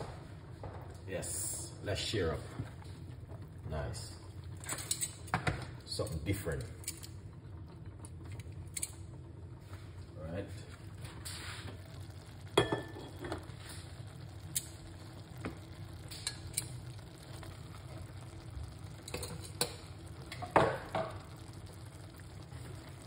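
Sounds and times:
vegetables sizzling in a pot: 8.1 - 23.0.

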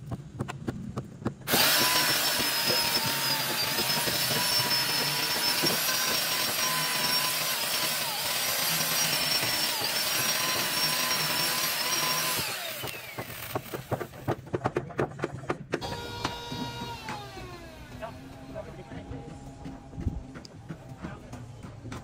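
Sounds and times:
power tool cutting wood: 1.5 - 14.4, 15.8 - 18.8
sharp taps and knocks: 12.3 - 17.2.

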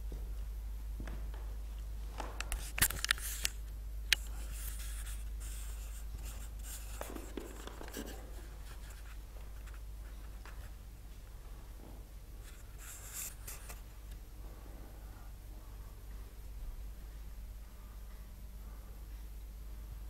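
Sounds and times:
steady low hum: 0.0 - 20.0
rubbing on camera body: 4.3 - 10.8, 12.4 - 13.9.

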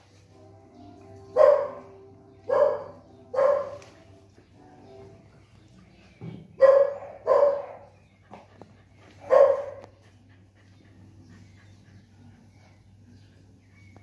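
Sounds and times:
small dog barking: 1.4 - 1.9, 2.5 - 3.8, 6.6 - 7.9, 9.2 - 9.9.

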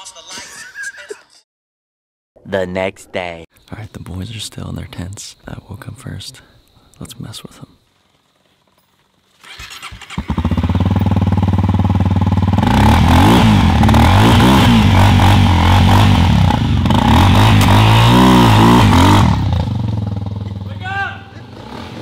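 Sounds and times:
motorcycle engine revving: 8.0 - 22.0.

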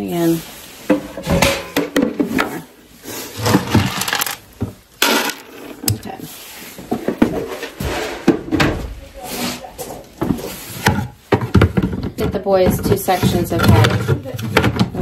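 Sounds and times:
plastic containers knocking: 10.1 - 15.0.

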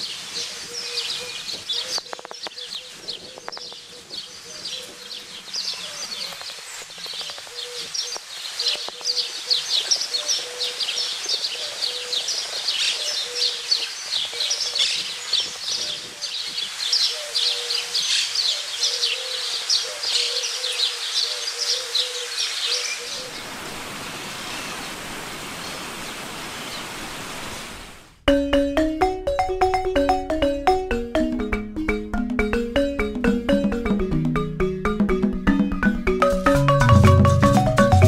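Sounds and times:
small birds chirping: 0.0 - 23.8.

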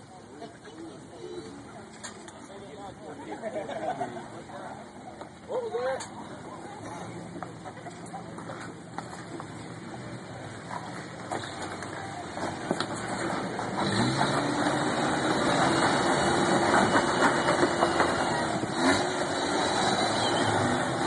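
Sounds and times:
truck engine revving under load: 9.7 - 21.0.

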